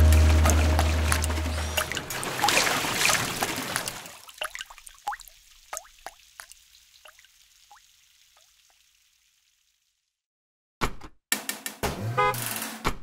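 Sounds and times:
water drips plinking: 0.0s - 9.3s
water splashing: 0.0s - 9.9s.

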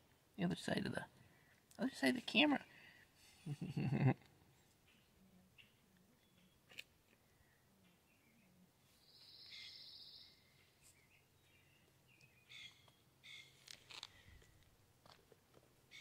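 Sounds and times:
bird chirps: 4.8s - 6.7s, 7.8s - 13.6s
bird trilling: 12.4s - 13.6s.

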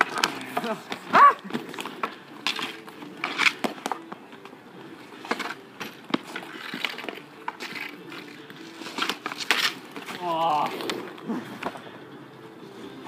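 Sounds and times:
hockey sticks knocking ball: 0.0s - 4.5s, 8.8s - 11.8s
inline skate wheels on asphalt: 0.0s - 13.0s.

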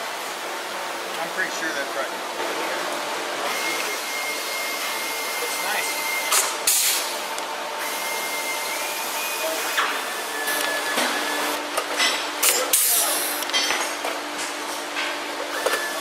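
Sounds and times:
steady workshop hiss: 0.0s - 16.0s
air hiss bursts from rivet puller: 6.3s - 7.1s.

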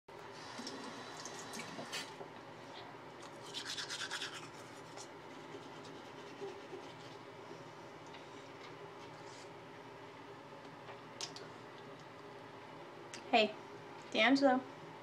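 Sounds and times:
toothbrush scrubbing teeth: 3.2s - 7.2s.

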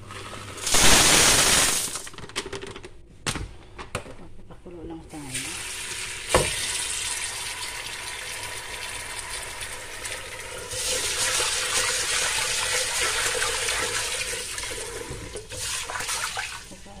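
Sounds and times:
tap water running into a pot: 5.4s - 16.8s.

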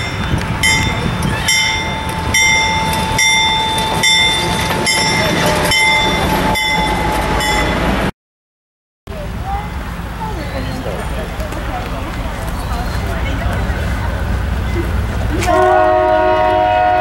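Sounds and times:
locomotive bell ringing: 0.0s - 8.1s
locomotive engine rumble: 0.0s - 8.1s, 9.1s - 17.0s.

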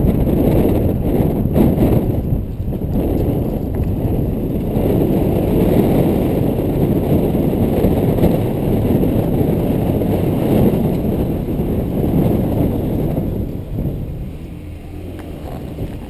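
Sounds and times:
car driving slowly: 0.0s - 16.0s
road noise: 0.0s - 16.0s
wind buffeting microphone: 0.0s - 16.0s.

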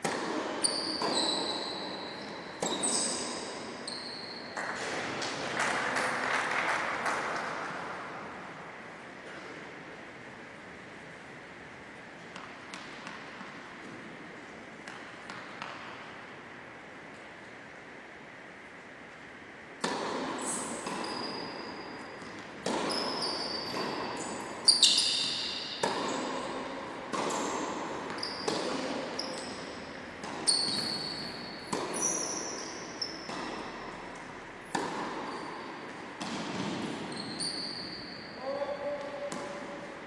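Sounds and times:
tennis ball hits and bounces: 0.0s - 2.0s, 2.6s - 3.7s, 12.3s - 14.1s, 14.8s - 16.1s, 19.8s - 24.4s, 25.0s - 37.1s, 39.0s - 39.7s.

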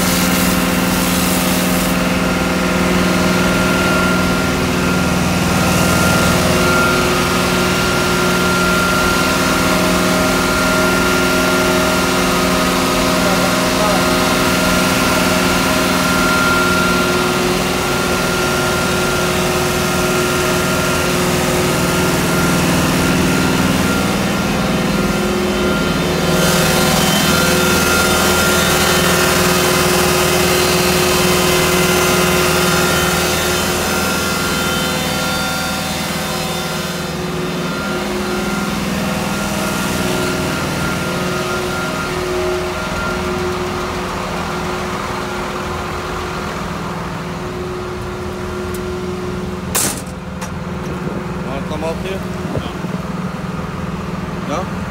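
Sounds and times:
machinery hiss: 0.0s - 2.4s
engine and pump hum: 0.0s - 54.9s.

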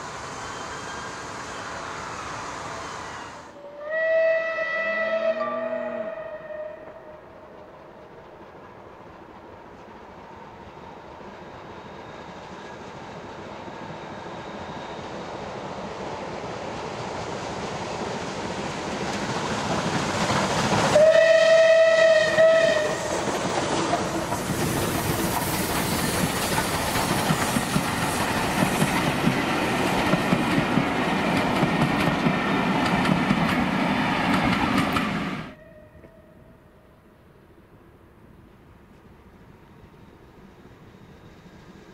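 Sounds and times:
steam whistle: 0.2s - 7.2s, 20.9s - 23.2s
steam train rumble and clatter: 6.8s - 35.6s.

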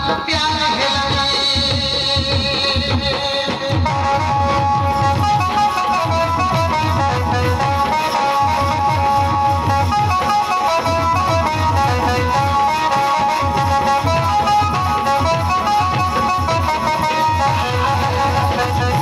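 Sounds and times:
fast drum beat: 0.0s - 19.0s
instrumental dance music: 0.0s - 19.0s.

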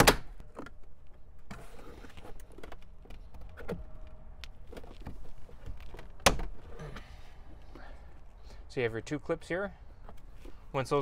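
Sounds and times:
plastic clicking and rubbing: 2.0s - 6.3s.

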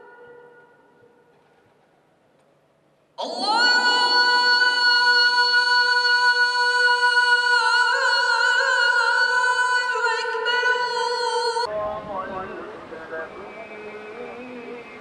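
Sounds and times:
man chanting: 3.2s - 15.0s.

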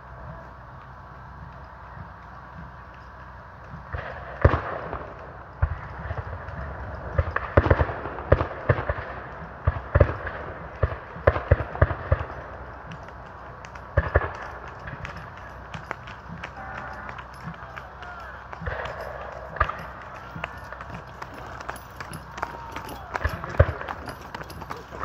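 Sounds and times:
gunshots: 3.9s - 12.4s, 18.6s - 21.4s.

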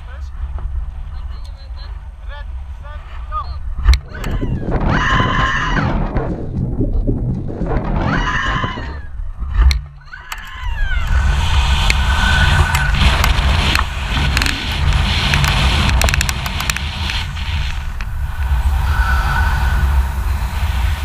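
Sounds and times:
wind buffeting microphone: 0.0s - 10.0s, 10.6s - 21.0s
scattered clicks: 12.6s - 18.1s.

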